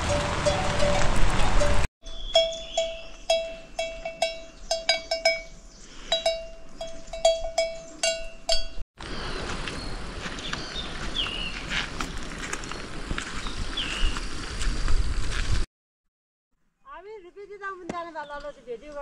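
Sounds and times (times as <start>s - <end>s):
livestock bell clanking: 0.0s - 8.8s
bird chirps: 2.0s - 8.1s.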